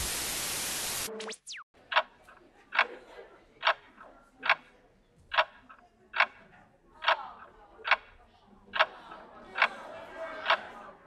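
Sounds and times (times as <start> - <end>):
sharp clock ticks: 1.9 - 2.9, 3.6 - 4.7, 5.3 - 9.0, 9.6 - 9.8, 10.4 - 10.6.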